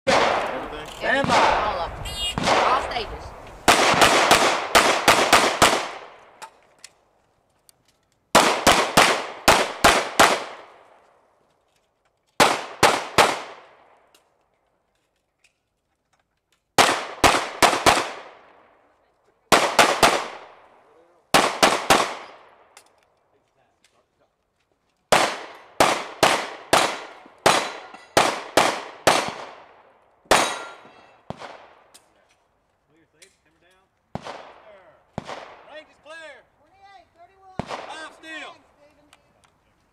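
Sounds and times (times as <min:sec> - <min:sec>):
pistol shots: 0:00.1 - 0:01.7, 0:02.4 - 0:02.8, 0:03.7 - 0:06.4, 0:08.3 - 0:10.8, 0:12.4 - 0:13.8, 0:16.8 - 0:18.5, 0:19.5 - 0:20.6, 0:21.3 - 0:22.6, 0:25.1 - 0:31.8, 0:34.1 - 0:35.7, 0:37.6 - 0:38.1.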